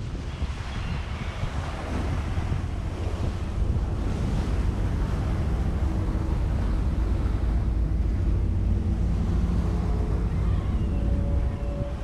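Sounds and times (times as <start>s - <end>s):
wind on microphone: 0.0s - 12.0s
ferry engine rumble: 0.6s - 12.0s.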